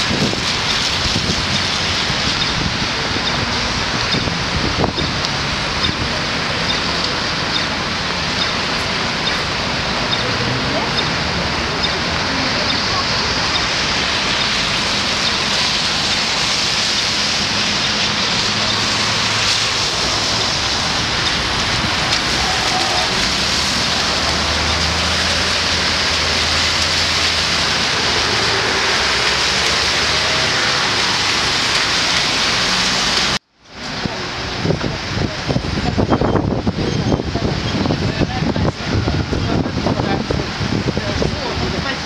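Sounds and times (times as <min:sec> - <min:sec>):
low engine hum of passing vehicles: 0:00.0 - 0:34.3
rain and tyres hissing on wet road: 0:00.0 - 0:42.0.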